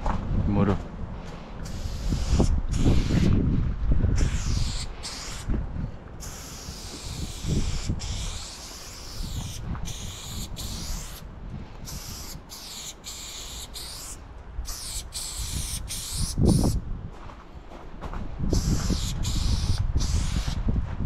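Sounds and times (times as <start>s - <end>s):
spray paint can hissing: 1.6s - 3.4s, 4.2s - 5.5s, 6.2s - 16.8s, 18.5s - 20.6s.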